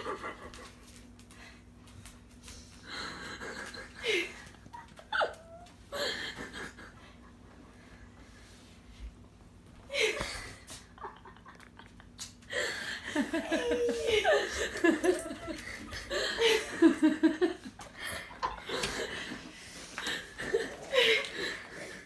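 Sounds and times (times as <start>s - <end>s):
person laughing: 9.9s - 19.4s.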